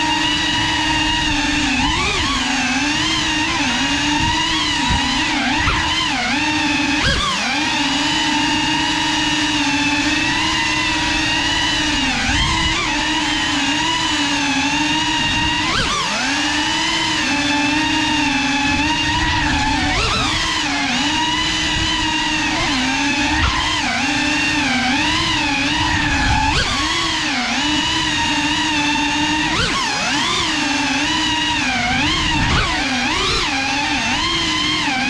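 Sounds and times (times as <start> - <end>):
drone motors whining: 0.0 - 35.0.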